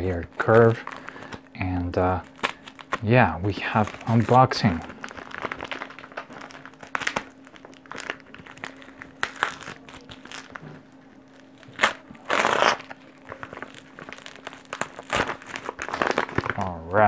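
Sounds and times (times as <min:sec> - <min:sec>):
paper crinkling: 0:00.0 - 0:16.8
paper tearing: 0:02.2 - 0:06.0, 0:11.6 - 0:16.7.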